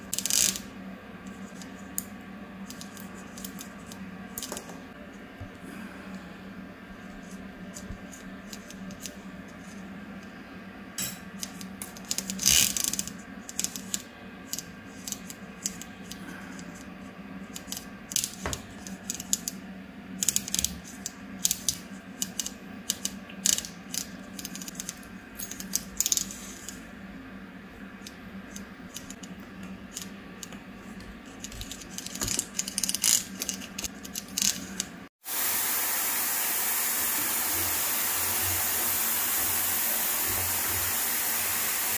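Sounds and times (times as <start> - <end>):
low steady hum: 0.0 - 12.1
small metal clicks and scrapes: 20.2 - 26.8, 28.0 - 34.9
running water: 35.2 - 41.9.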